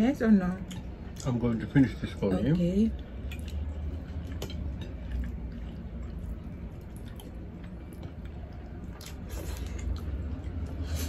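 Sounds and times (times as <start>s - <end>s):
steady low hum: 0.0s - 11.0s
close chewing: 3.0s - 11.0s.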